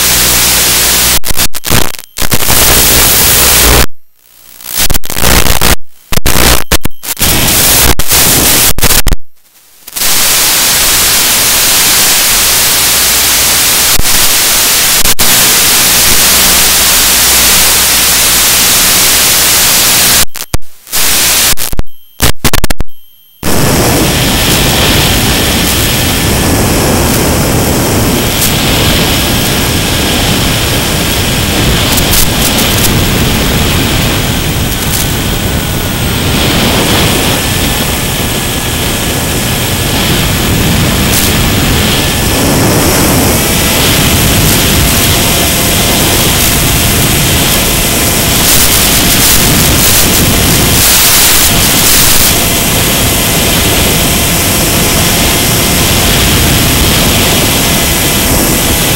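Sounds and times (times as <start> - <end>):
electric motor and propeller drone: 0.0 - 1.2, 23.4 - 58.9
radio static hiss: 0.0 - 58.9
wind rush: 23.4 - 58.9.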